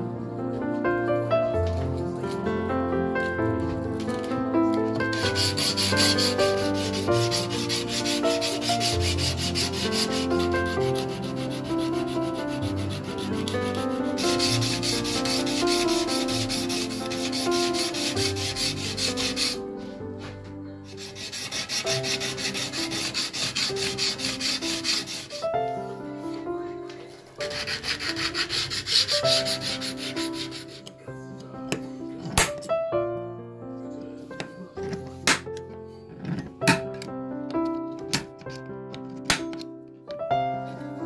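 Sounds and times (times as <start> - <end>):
background music: 0.0 - 41.0
sandpaper rubbing on steel blade: 5.1 - 19.6, 20.9 - 25.4, 27.4 - 30.9.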